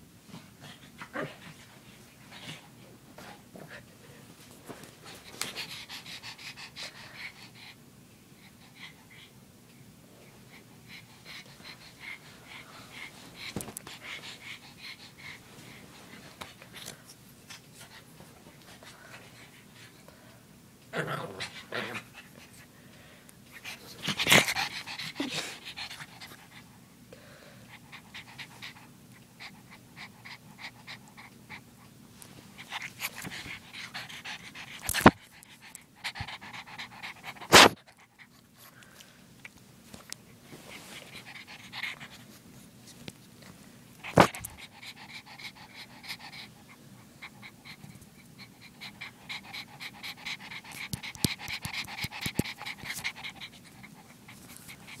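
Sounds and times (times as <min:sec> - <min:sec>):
puppy panting: 0:04.8 - 0:07.8, 0:10.4 - 0:20.0, 0:23.5 - 0:26.8, 0:27.7 - 0:39.0, 0:40.0 - 0:43.0, 0:44.0 - 0:55.0.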